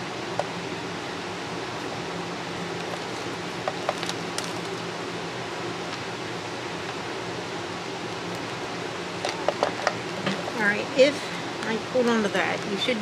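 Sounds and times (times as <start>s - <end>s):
room hiss: 0.0s - 13.0s.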